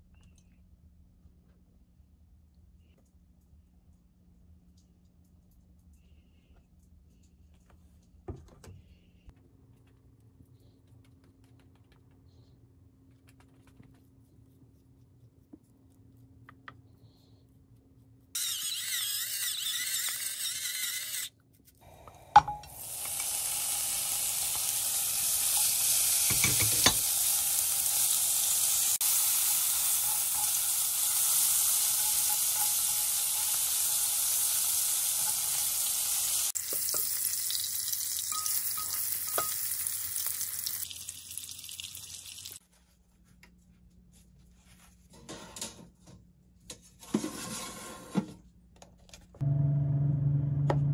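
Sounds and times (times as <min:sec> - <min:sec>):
meat frying sizzle: 0:22.6 - 0:42.6.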